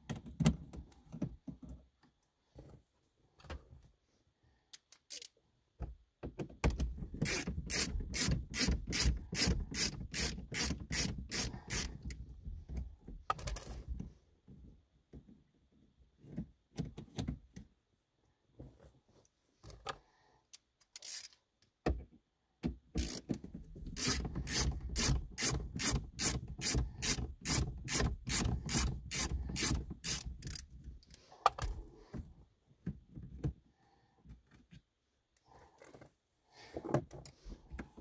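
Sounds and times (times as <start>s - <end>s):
ratcheting screwdriver clicking: 4.8s - 5.4s, 7.2s - 12.1s, 20.8s - 21.4s, 23.0s - 23.4s, 24.0s - 31.2s
tool knocking and scraping: 22.6s - 30.6s.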